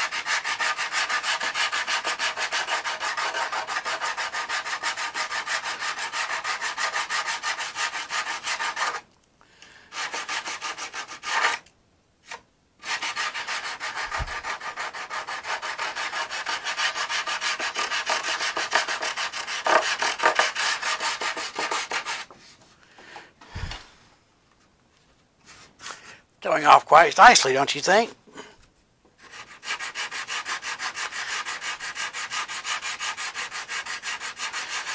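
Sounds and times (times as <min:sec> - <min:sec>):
sandpaper rubbing back and forth: 0:00.0 - 0:09.0, 0:09.9 - 0:11.6, 0:12.3 - 0:22.3, 0:29.2 - 0:34.9.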